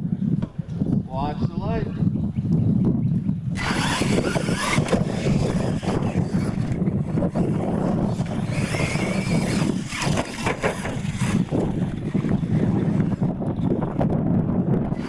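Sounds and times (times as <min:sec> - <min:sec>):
wind rumble on microphone: 0:00.0 - 0:15.0
electric motors whining: 0:03.5 - 0:13.7, 0:14.8 - 0:15.0.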